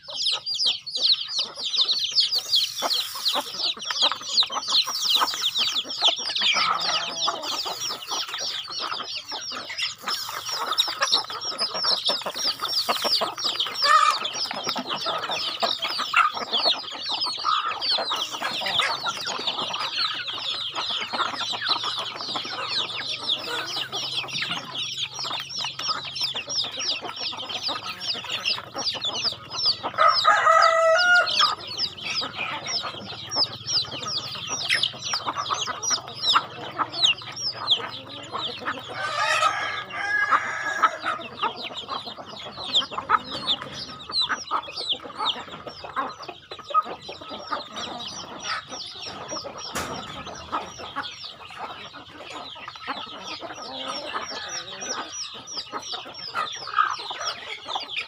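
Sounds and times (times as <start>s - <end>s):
chicks peeping: 0.0s - 58.0s
hens clucking: 0.0s - 58.0s
rooster crowing: 30.0s - 31.6s, 39.0s - 41.2s.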